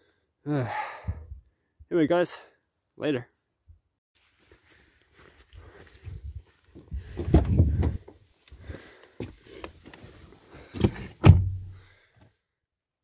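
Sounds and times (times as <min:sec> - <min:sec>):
rustling and thumps: 0:06.7 - 0:08.2, 0:10.6 - 0:11.8
car door opening: 0:10.8 - 0:11.6
car door shutting thud: 0:10.8 - 0:11.7.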